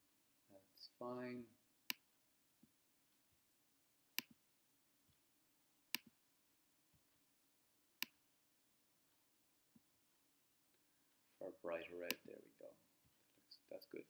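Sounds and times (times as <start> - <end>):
computer mouse clicks: 4.2 - 4.4, 8.0 - 8.2.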